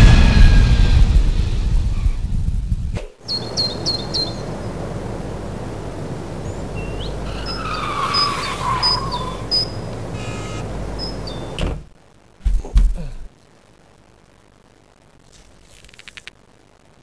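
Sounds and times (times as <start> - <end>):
jet airliner rumble: 0.0 - 11.8
birds chirping: 3.1 - 11.9
whistled bird calls: 3.2 - 4.6, 6.4 - 11.6.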